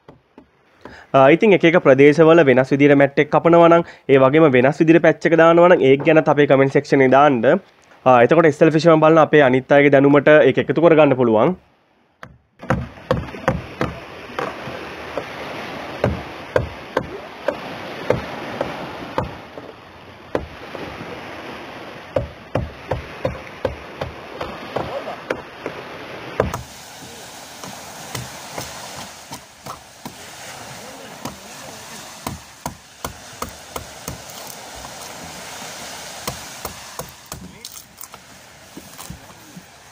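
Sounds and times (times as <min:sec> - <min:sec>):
background hiss: 0:26.3 - 0:39.9.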